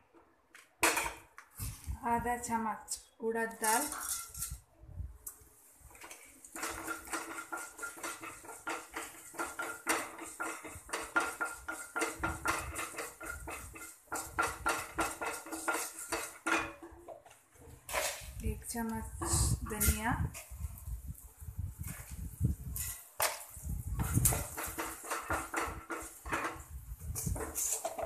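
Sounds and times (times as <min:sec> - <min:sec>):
wooden spatula scraping a pan: 0:03.6 - 0:04.6, 0:05.9 - 0:18.4, 0:24.0 - 0:28.0.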